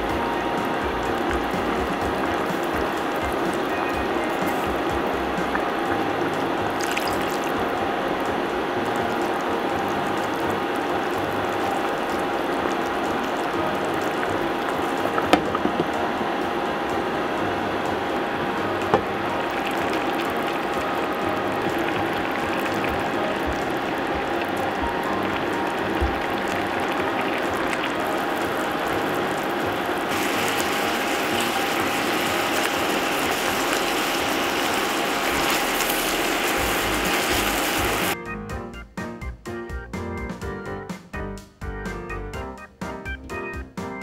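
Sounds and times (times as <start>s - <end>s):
sauce bubbling in a skillet: 0.0s - 38.2s.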